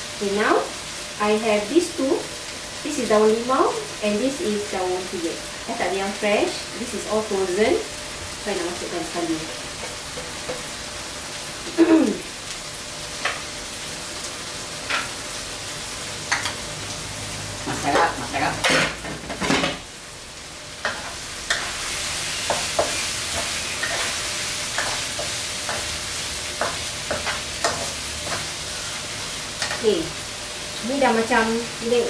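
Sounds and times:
paste sizzling in hot oil: 0:00.0 - 0:32.0
spatula scraping pan: 0:20.8 - 0:30.1.

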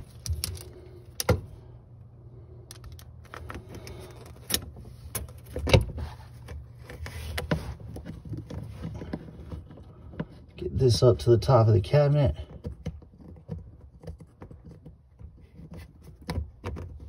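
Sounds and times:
metal strap and screwdriver clicks: 0:00.0 - 0:01.4.

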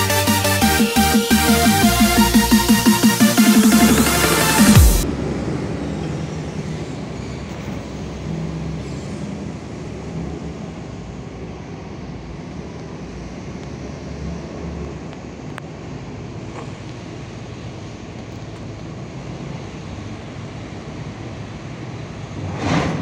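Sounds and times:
electronic music: 0:00.0 - 0:05.1
falling pitch sweep: 0:00.0 - 0:07.8
low hum of distant diesel engines: 0:05.0 - 0:23.0.

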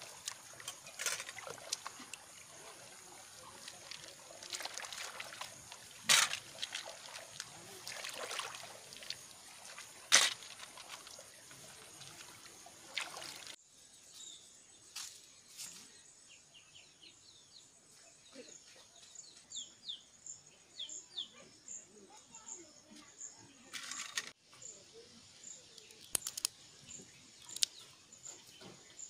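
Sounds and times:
hands sloshing in muddy water: 0:00.0 - 0:13.6.

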